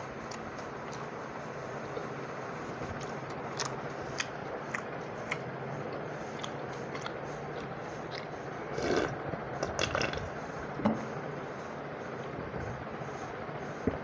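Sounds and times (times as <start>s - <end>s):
person chewing with wet mouth clicks: 3.0s - 10.2s
person slurping: 8.7s - 10.3s.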